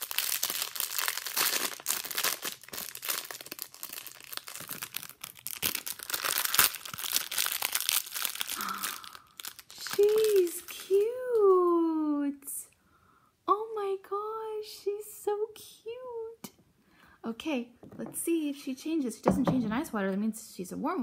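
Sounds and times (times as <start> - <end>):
wrapper tearing: 0.0 - 11.5
wrapper crinkling and rustling: 0.0 - 11.7.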